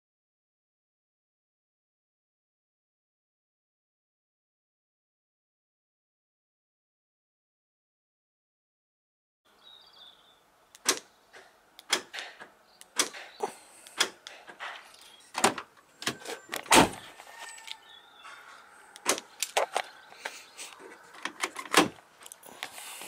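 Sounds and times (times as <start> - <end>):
door lock solenoids clicking: 10.7 - 17.0, 19.0 - 20.0, 21.1 - 22.5
door handles pulled against latches: 11.8 - 13.4, 14.0 - 17.0, 21.2 - 22.0.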